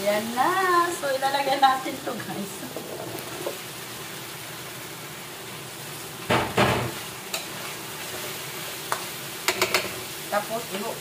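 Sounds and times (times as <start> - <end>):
food sizzling in a wok: 0.0 - 11.0
metal spatula clicking on pan: 8.9 - 9.9.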